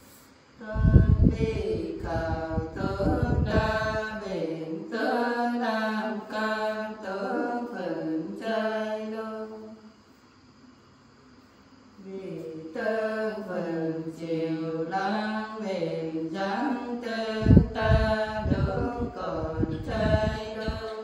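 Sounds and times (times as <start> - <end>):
woman singing folk song: 12.1 - 21.0.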